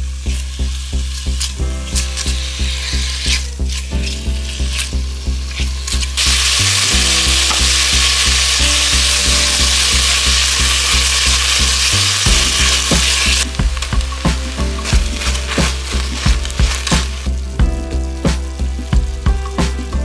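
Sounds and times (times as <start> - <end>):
background music with steady beat: 0.0 - 20.0
pork sizzling in a pot: 0.0 - 20.0.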